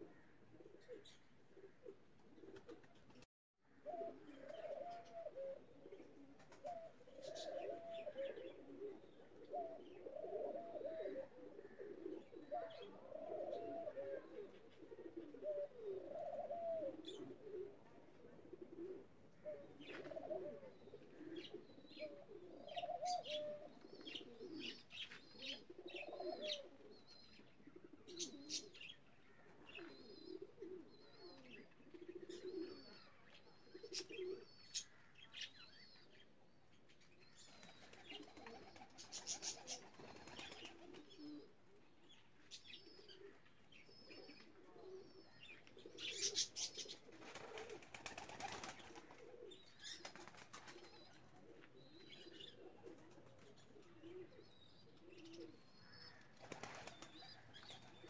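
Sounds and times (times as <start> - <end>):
pigeons cooing: 0.0 - 3.0, 3.7 - 35.5, 37.3 - 58.0
wings flapping: 37.6 - 41.0, 47.1 - 49.2, 50.0 - 50.9, 56.4 - 57.2.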